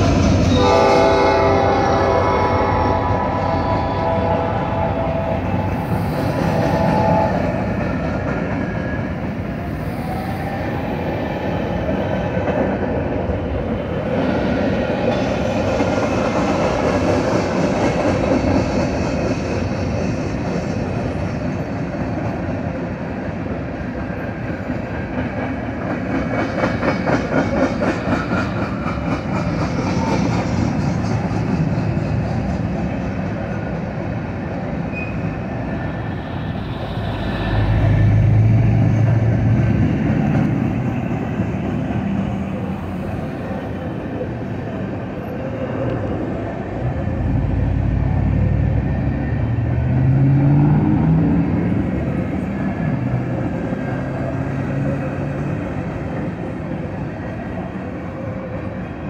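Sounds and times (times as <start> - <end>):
freight train rumbling past: 0.0 - 59.0
steel wheels clacking over rails: 24.0 - 34.2.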